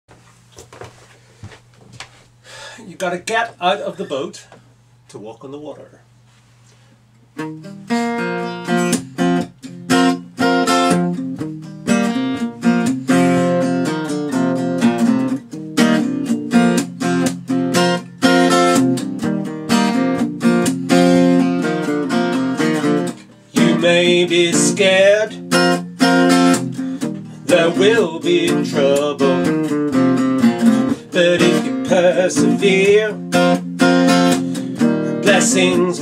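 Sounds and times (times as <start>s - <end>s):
acoustic guitar strumming: 7.3s - 36.0s.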